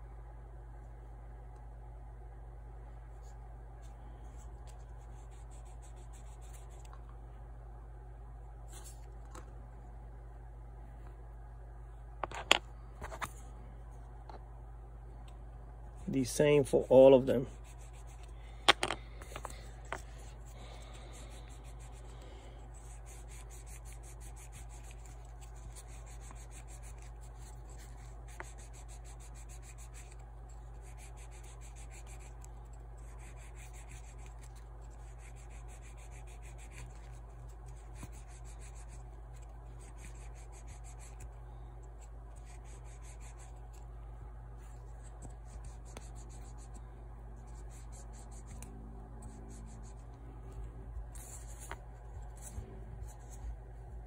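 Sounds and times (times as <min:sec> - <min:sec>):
low hum: 0:00.0 - 0:30.9, 0:38.8 - 0:54.0.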